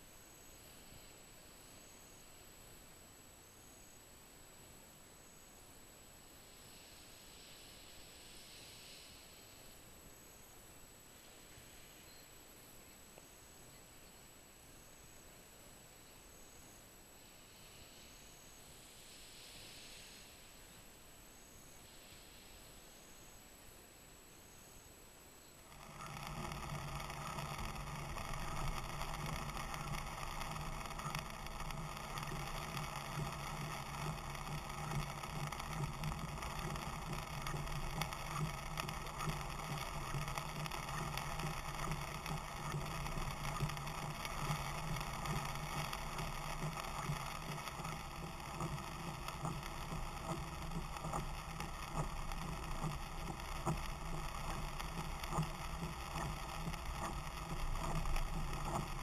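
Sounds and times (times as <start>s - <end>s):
engine and tyre drone: 25.6s - 59.0s
light ticks: 25.6s - 59.0s.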